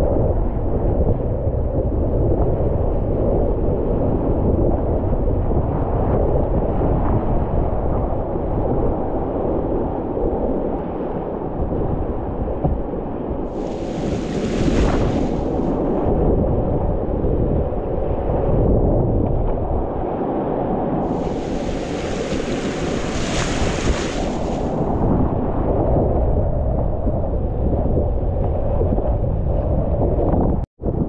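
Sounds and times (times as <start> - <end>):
wind buffeting microphone: 0.0 - 10.8, 11.4 - 20.2, 21.0 - 31.0
whitewater rushing and splashing: 13.5 - 15.8, 21.1 - 25.0.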